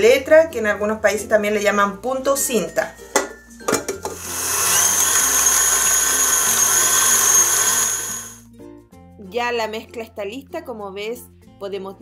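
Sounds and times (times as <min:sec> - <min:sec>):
stand mixer motor whine: 0:04.1 - 0:08.4
whisk beating eggs: 0:04.1 - 0:08.4.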